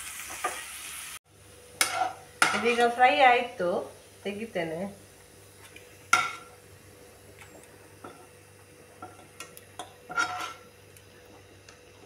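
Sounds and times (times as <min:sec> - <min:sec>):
metal spoon scraping pan: 0:01.8 - 0:03.0, 0:10.1 - 0:10.7.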